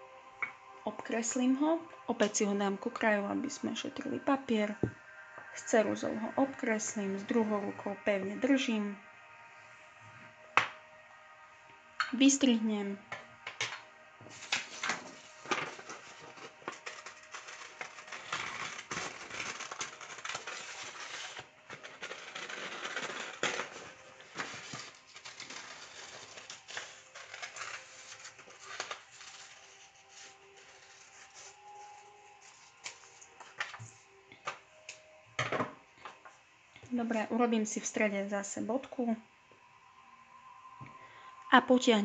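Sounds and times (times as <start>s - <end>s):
paper rustling: 14.3s - 34.6s
scissors snipping paper: 15.8s - 31.5s.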